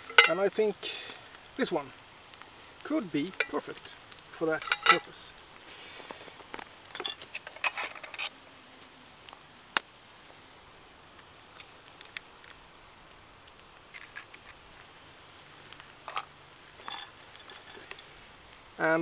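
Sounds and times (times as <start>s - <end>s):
egg cracking: 11.2s - 15.0s.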